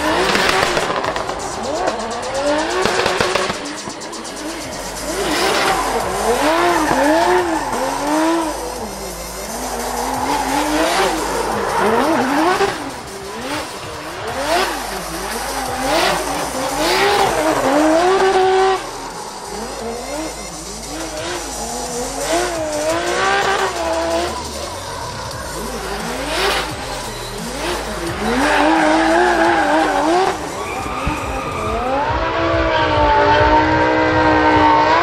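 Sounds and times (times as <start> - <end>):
tyres screeching: 0.0 - 32.4
car engines revving: 0.0 - 35.0.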